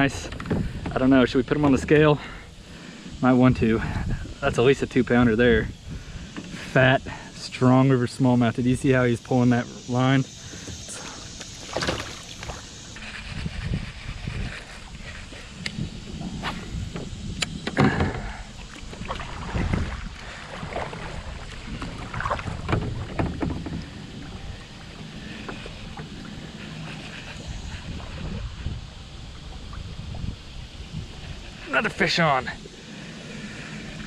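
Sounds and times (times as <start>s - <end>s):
water washing against kayak hull: 0.0s - 34.0s
water splashes: 5.9s - 34.0s
paddle and gear knocking: 14.3s - 27.4s.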